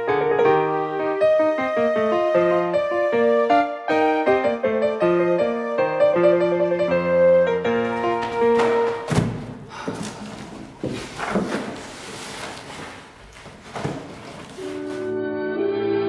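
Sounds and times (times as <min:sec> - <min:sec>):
piano music: 0:00.0 - 0:09.5, 0:14.5 - 0:16.0
heavy thuds: 0:07.7 - 0:15.1.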